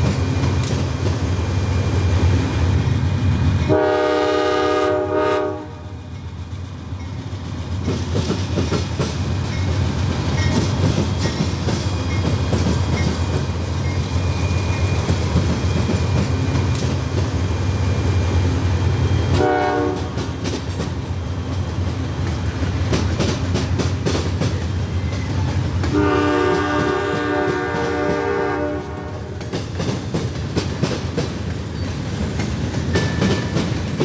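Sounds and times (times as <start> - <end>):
train wheel clatter: 0.0 - 3.0, 6.0 - 34.0
train horn blast: 3.6 - 6.0, 19.3 - 20.4, 25.8 - 29.5.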